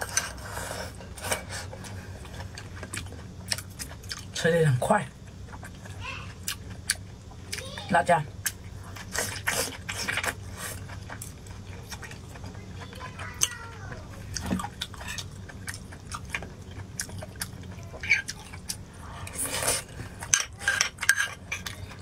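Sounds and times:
chewing and mouth smacks: 0:14.2 - 0:18.8.

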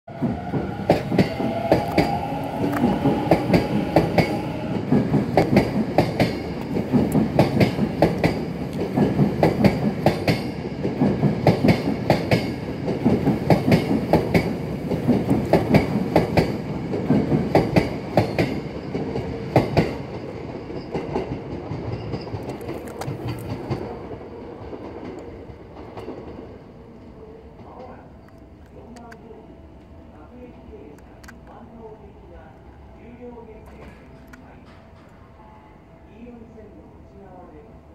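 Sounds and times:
train rumbling: 0:00.1 - 0:37.9
train wheels clicking over rail joints: 0:00.3 - 0:24.0.

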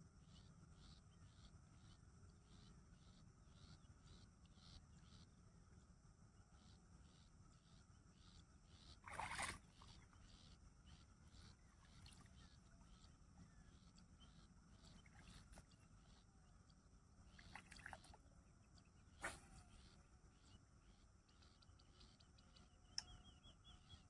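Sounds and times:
insects chirping: 0:00.2 - 0:24.0
splashing while wading: 0:09.0 - 0:09.9, 0:17.4 - 0:18.2.

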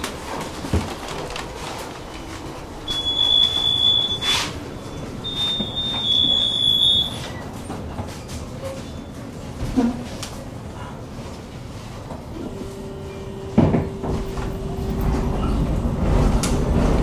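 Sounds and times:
tram rumbling on rails: 0:00.0 - 0:17.0
high-pitched squeal: 0:02.9 - 0:07.4.

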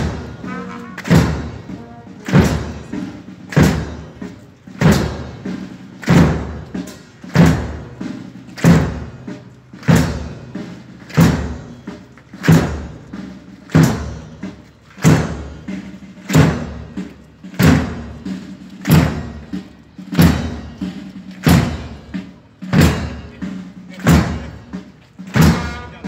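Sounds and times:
brass holding low notes: 0:00.0 - 0:02.3
loud drum beat: 0:00.0 - 0:26.0.

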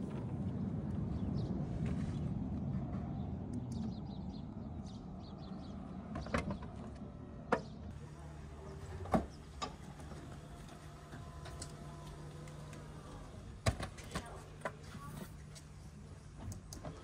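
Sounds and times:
low rumble: 0:00.0 - 0:06.1.

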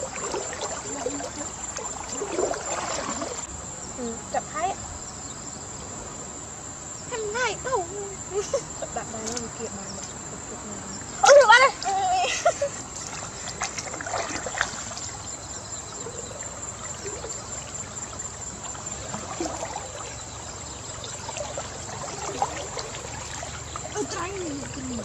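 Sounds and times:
small splashes and knocks: 0:00.0 - 0:03.5, 0:09.2 - 0:10.3, 0:11.0 - 0:25.0
river water swishing and trickling: 0:00.0 - 0:06.3, 0:07.2 - 0:25.0.

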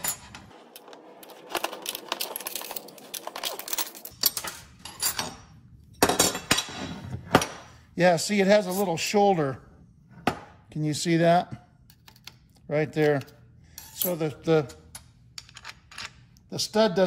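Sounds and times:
metal parts clinking on workbench: 0:00.0 - 0:06.8, 0:13.8 - 0:16.3.

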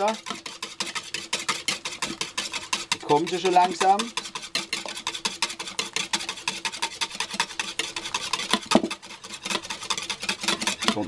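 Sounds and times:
whisk scraping against bowl: 0:00.0 - 0:11.0.

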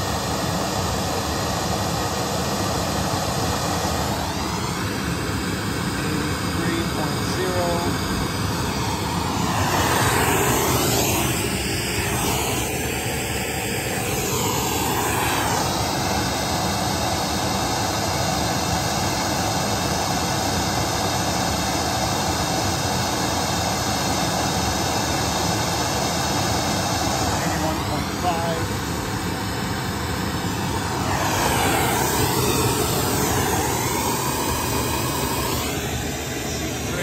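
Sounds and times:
rushing test noise from speaker: 0:06.0 - 0:16.0.

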